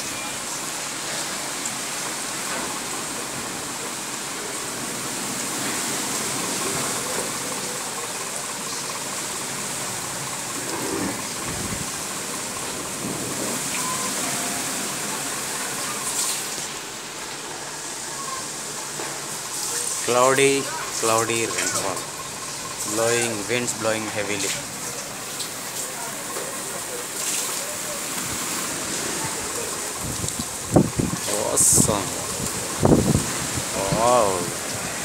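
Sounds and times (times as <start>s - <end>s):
heavy rain hissing: 0.0s - 35.0s
strong wind blowing: 11.1s - 12.1s, 29.2s - 35.0s.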